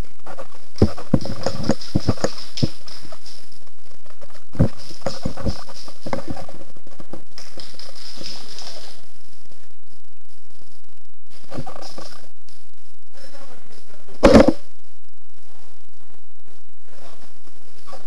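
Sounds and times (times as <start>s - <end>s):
footsteps crunching on gritty floor: 0.8s - 3.5s, 4.6s - 6.5s, 7.4s - 9.0s
high hiss: 7.4s - 9.7s.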